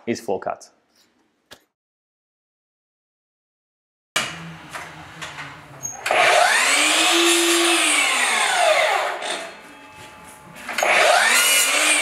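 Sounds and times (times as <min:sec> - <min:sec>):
mitre saw cutting wood: 0:06.1 - 0:09.5, 0:10.8 - 0:12.0.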